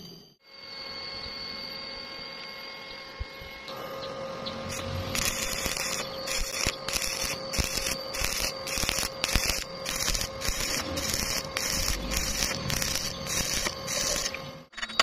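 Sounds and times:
welding arc crackling and sizzling: 0:04.6 - 0:14.7.

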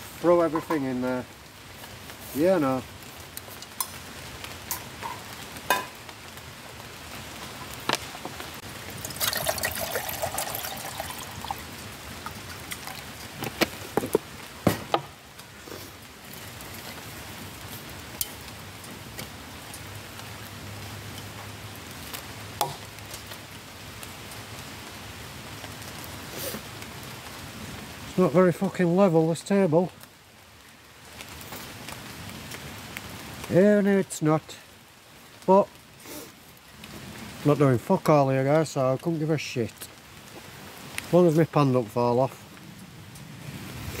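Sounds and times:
rain hissing: 0:00.0 - 0:44.0
metallic knocks of pot: 0:05.0 - 0:06.0
water poured into metal pot: 0:09.0 - 0:11.7.

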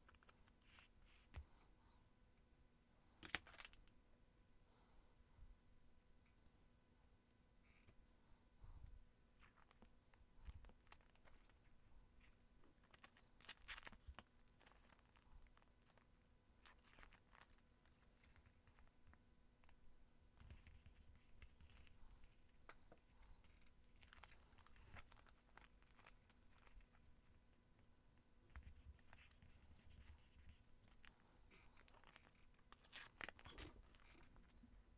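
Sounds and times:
paper rustling and crinkling: 0:28.5 - 0:34.6.

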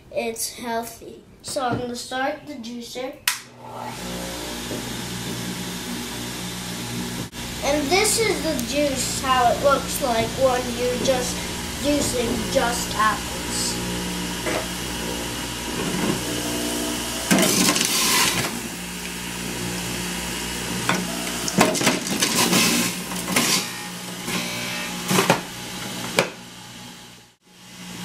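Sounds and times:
juicer motor humming: 0:03.6 - 0:28.0
apples grinding and crunching: 0:07.4 - 0:19.9.

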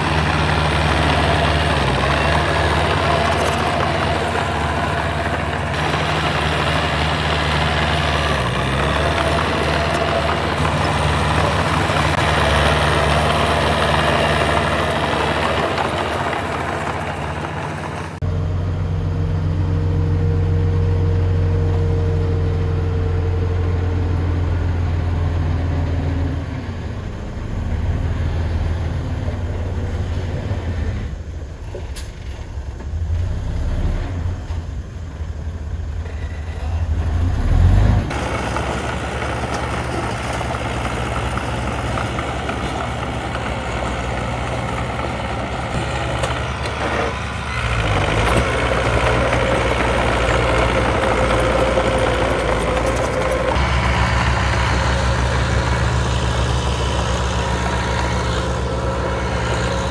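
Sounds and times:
grinding of soil and rocks: 0:00.0 - 0:18.3, 0:36.0 - 0:59.9
bulldozer diesel engine under load: 0:00.0 - 0:59.9
dump truck diesel engine: 0:00.0 - 0:59.9.

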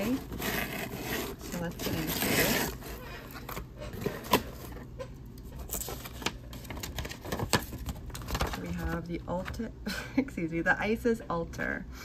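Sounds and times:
card rustling: 0:00.0 - 0:09.5.

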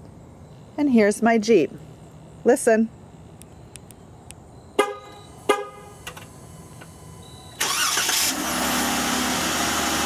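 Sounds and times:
short car horn chirps: 0:04.8 - 0:06.0
car engine cranking and running: 0:05.4 - 0:10.0.

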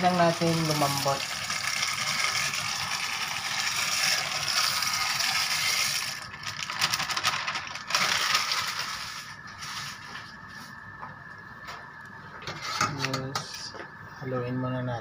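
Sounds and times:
dry pasta pouring into pot: 0:00.0 - 0:09.4
plastic bag crinkling: 0:03.6 - 0:10.0.

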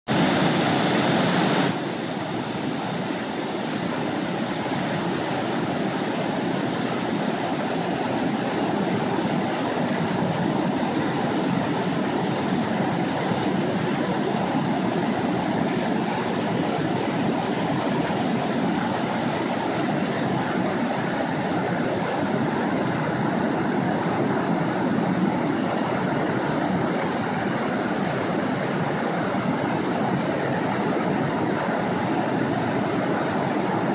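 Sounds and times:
water rushing over rocks: 0:00.1 - 0:33.9.

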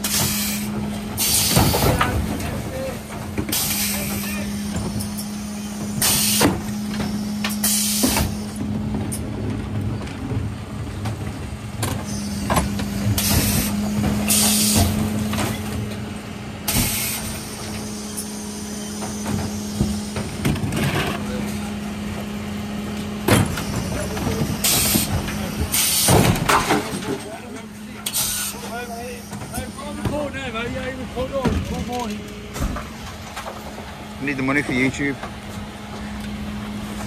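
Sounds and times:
air hissing: 0:00.0 - 0:02.0, 0:03.5 - 0:08.6, 0:12.0 - 0:15.2
hydraulic hum: 0:00.0 - 0:37.0.

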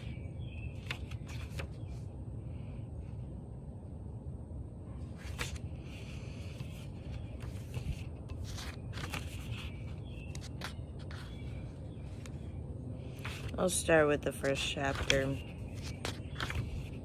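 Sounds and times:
book pages rustling and flicking: 0:00.0 - 0:02.1, 0:05.0 - 0:12.5, 0:13.1 - 0:17.0
steady low rumble: 0:00.0 - 0:17.0.

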